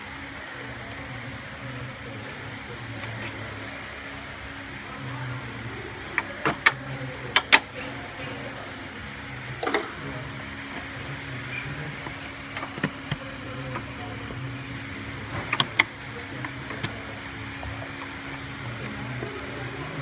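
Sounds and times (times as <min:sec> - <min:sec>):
steady low hum: 0:00.0 - 0:20.0
sharp clicks and knocks: 0:12.0 - 0:13.9, 0:15.3 - 0:17.0.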